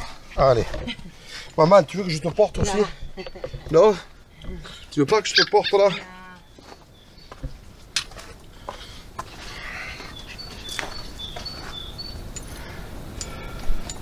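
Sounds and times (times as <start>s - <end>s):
footsteps on rocky ground: 6.4s - 12.7s.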